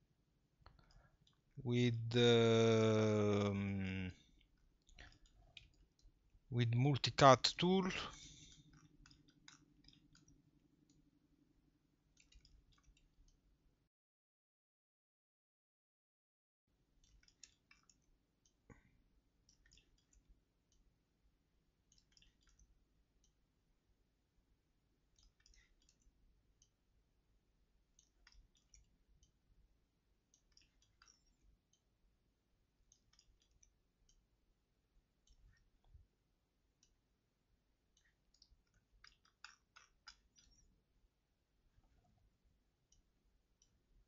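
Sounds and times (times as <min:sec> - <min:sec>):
computer mouse clicks: 0:08.1 - 0:11.0, 0:12.1 - 0:13.4, 0:17.0 - 0:20.9, 0:21.9 - 0:23.4, 0:25.1 - 0:26.8, 0:27.9 - 0:29.4, 0:30.3 - 0:31.9, 0:32.8 - 0:34.3, 0:37.9 - 0:40.7.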